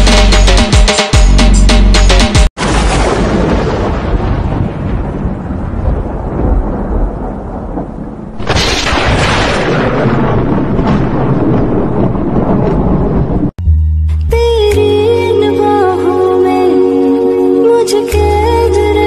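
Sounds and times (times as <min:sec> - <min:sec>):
loud thunder crash: 0:02.6 - 0:13.6
thunder rumbling: 0:02.6 - 0:13.6.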